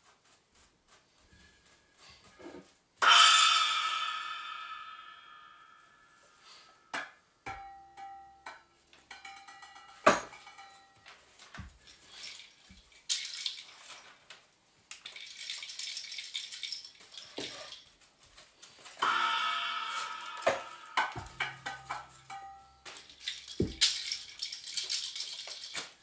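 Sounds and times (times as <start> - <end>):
aluminium foil crinkling: 11.1 - 19.0, 21.3 - 26.0.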